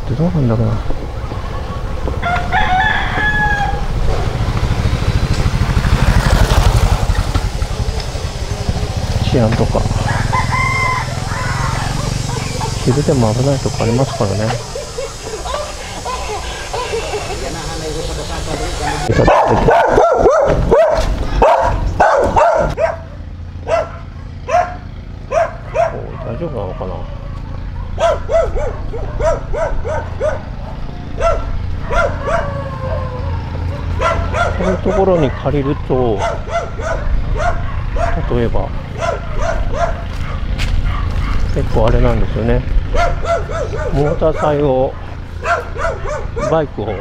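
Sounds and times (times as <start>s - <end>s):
motorcycle passing close: 0.0s - 47.0s
rooster crowing: 2.2s - 4.0s, 9.7s - 13.2s, 14.4s - 19.3s, 30.9s - 34.8s
dog barking: 10.1s - 17.5s, 18.6s - 41.5s, 42.8s - 47.0s.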